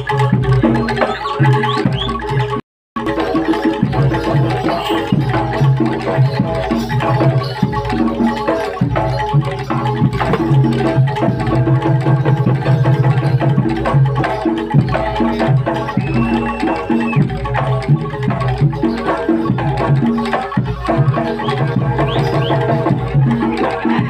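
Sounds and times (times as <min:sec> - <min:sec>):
gamelan music: 0:00.0 - 0:24.0
hand drum strokes: 0:03.2 - 0:16.5.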